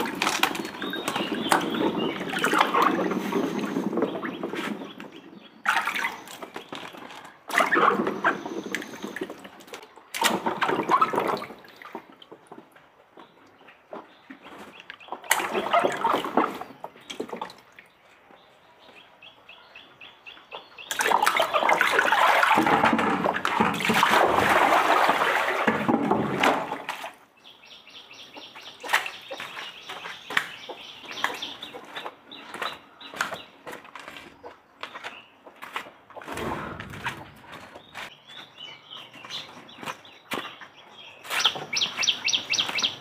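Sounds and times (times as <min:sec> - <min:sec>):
water splashing and pouring: 0:00.0 - 0:12.6, 0:15.3 - 0:17.9, 0:20.9 - 0:27.3.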